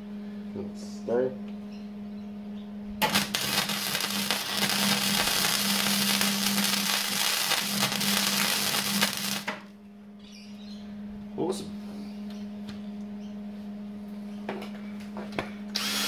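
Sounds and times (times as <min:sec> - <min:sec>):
low hum: 0:00.0 - 0:16.0
welding arc crackling: 0:03.0 - 0:09.7.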